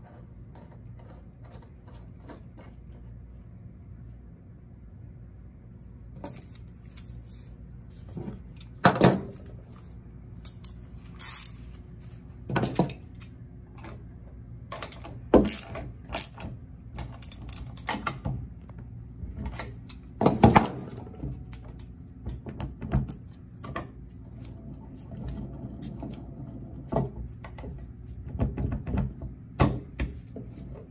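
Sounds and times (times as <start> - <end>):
wrench turning axle: 10.4 - 11.7, 14.7 - 18.0.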